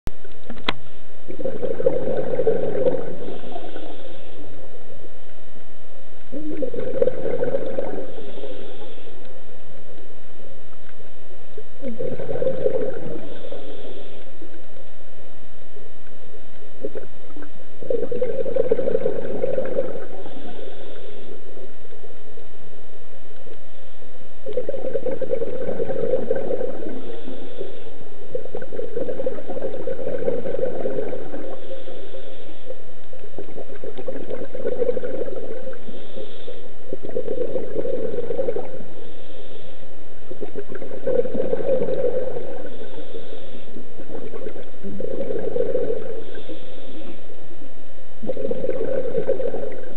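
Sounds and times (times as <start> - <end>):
exhaled bubbles gurgling: 0.1 - 15.2, 16.0 - 22.6, 24.3 - 49.9
regulator inhalation hiss: 8.1 - 9.2, 13.2 - 14.5, 20.1 - 21.6, 26.8 - 28.2, 31.4 - 32.9, 35.6 - 36.9, 38.9 - 40.0, 42.4 - 44.0, 46.0 - 47.4.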